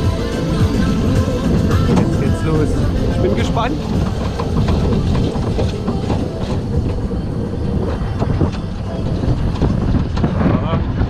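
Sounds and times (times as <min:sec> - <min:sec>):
roller coaster clattering: 0:00.0 - 0:11.0
roller coaster wheels rumbling: 0:00.0 - 0:11.0.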